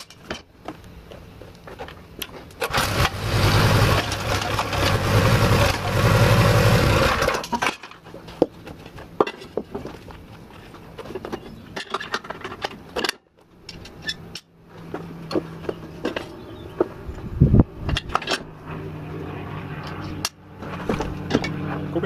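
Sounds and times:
small petrol engine running: 2.6s - 7.6s.

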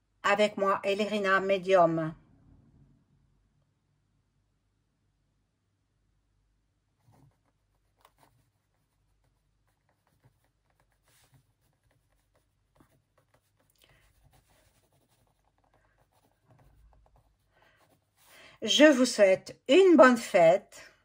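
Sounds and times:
pen scratching on paper: 7.0s - 19.1s.

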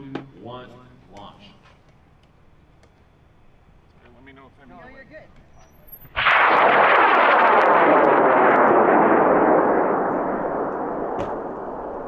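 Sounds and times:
rocket motor crackling roar: 6.0s - 12.0s.

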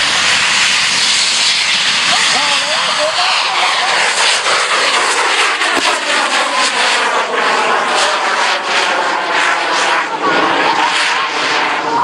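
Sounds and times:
rocket motor roaring with crackling: 0.0s - 12.0s
sharp crack: 5.4s - 7.0s.

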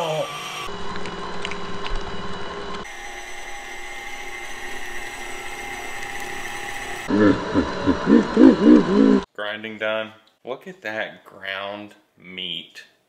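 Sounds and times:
meat grinder motor whining: 2.8s - 9.2s
voice-like sound rising and falling: 7.1s - 9.3s.

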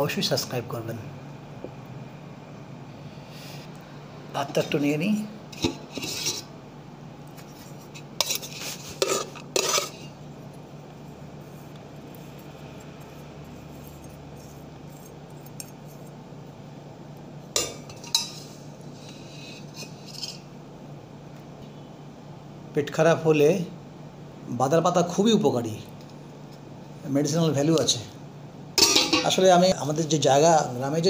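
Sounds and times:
spoon clinking on metal pot: 28.8s - 29.3s.

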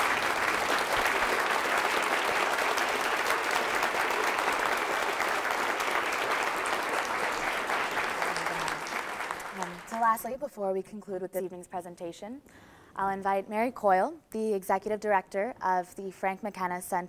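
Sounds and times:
audience applauding: 0.0s - 10.3s.

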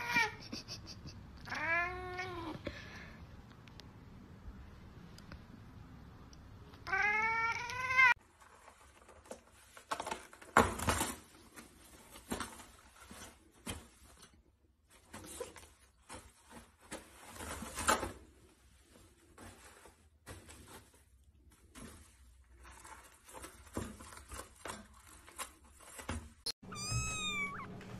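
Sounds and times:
toilet paper rustling and crinkling: 8.2s - 26.4s
cat meowing: 26.6s - 27.8s.

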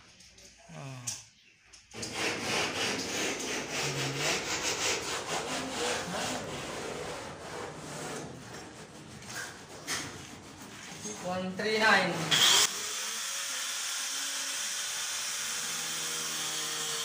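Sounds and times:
rhythmic rasping strokes: 2.0s - 10.8s.

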